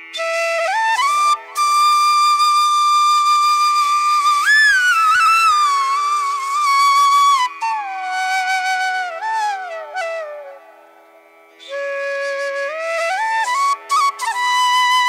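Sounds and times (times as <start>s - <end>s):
flute melody: 0.1s - 10.8s, 11.6s - 15.0s.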